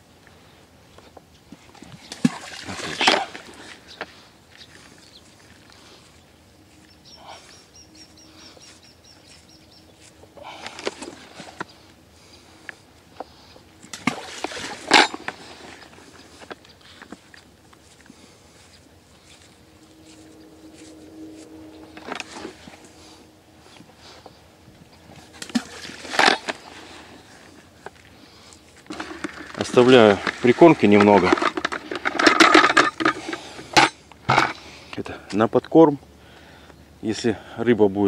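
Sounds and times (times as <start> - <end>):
bait splashing into water: 13.9 - 14.9.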